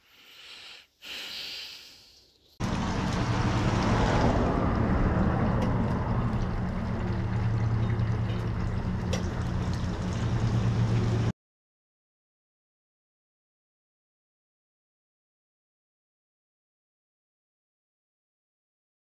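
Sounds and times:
low motor hum: 0:02.6 - 0:11.3.

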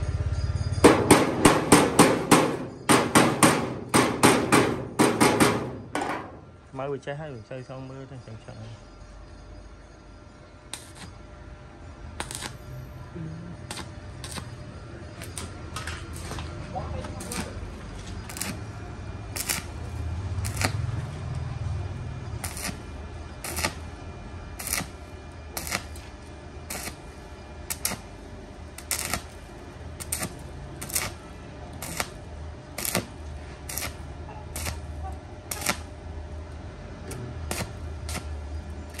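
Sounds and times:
welding arc crackle: 0:10.7 - 0:11.1, 0:12.2 - 0:12.7, 0:13.6 - 0:36.0, 0:37.0 - 0:39.0.

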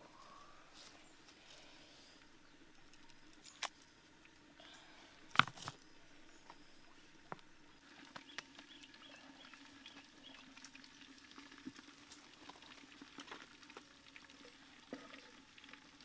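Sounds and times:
faint low hum: 0:00.0 - 0:11.1
clay pot set down on stones: 0:05.3 - 0:05.8.

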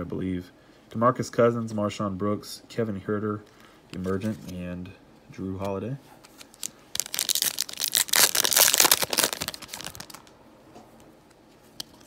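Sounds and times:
card pack wrapper tearing and crinkling: 0:06.3 - 0:10.3.

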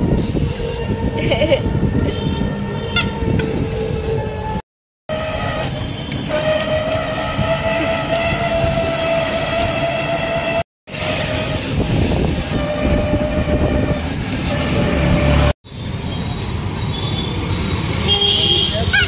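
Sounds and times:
street traffic: 0:00.0 - 0:19.0
long car horn blast: 0:02.0 - 0:04.3, 0:05.1 - 0:11.8.

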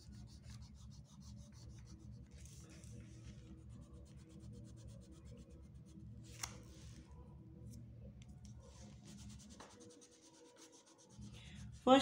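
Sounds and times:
oil pastel scratching on paper: 0:00.0 - 0:06.0, 0:08.6 - 0:12.0.

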